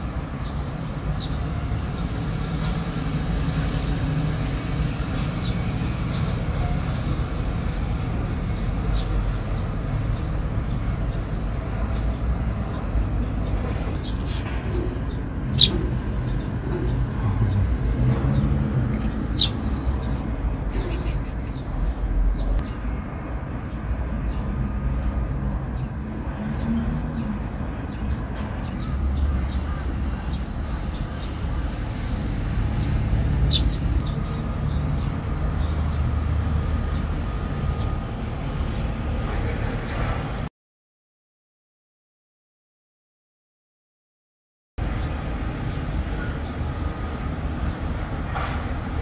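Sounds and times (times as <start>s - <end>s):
sparrow chirps: 0.0s - 22.8s, 27.9s - 36.1s
low traffic rumble: 0.0s - 40.5s, 44.8s - 49.0s.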